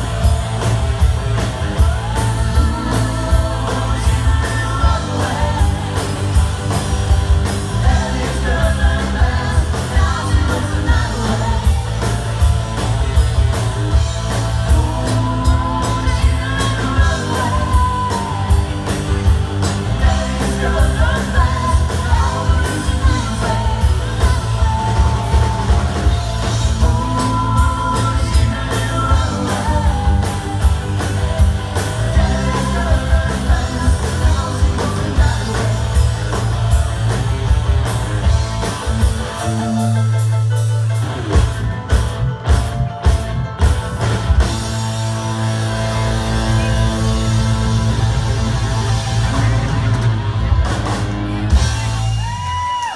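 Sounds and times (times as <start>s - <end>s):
steady drum beat: 0.0s - 40.4s, 41.0s - 52.8s
heavy bass: 0.0s - 52.9s
live rock band playing: 0.0s - 52.9s
person singing: 1.8s - 6.4s, 14.3s - 36.4s.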